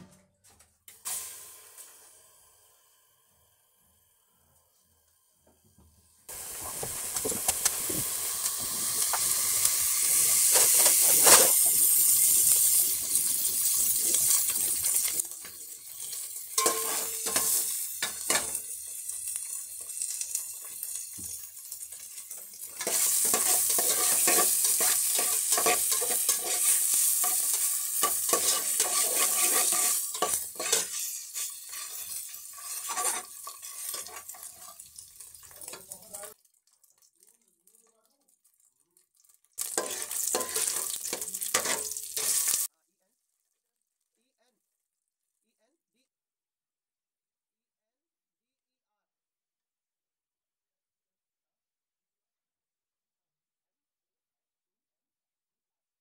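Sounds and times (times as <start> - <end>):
food sizzling in a pan: 0.9 - 42.7
metal utensil scraping a pan: 6.5 - 36.3, 39.6 - 42.7.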